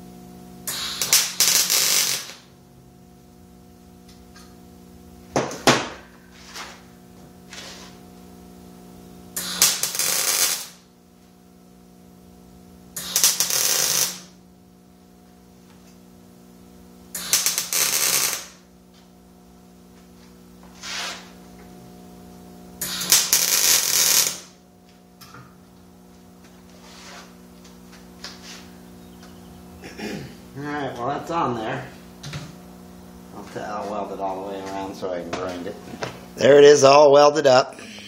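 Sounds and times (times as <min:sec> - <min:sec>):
steady electrical hum: 0:00.0 - 0:38.0
crackling welding arc: 0:00.6 - 0:02.6, 0:09.3 - 0:11.0, 0:12.9 - 0:14.5, 0:17.0 - 0:18.8, 0:22.7 - 0:24.6.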